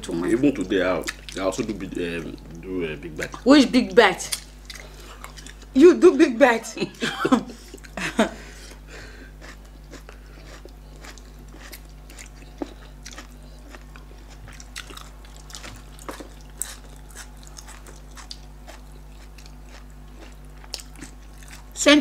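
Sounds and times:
steady low hum: 0.0s - 22.0s
chewing smacks and squishes: 4.3s - 5.7s, 9.4s - 21.8s.

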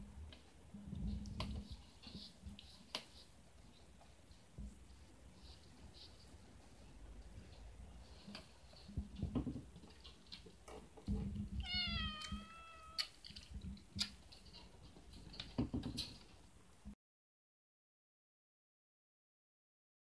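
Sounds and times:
cat meowing: 11.6s - 13.2s.

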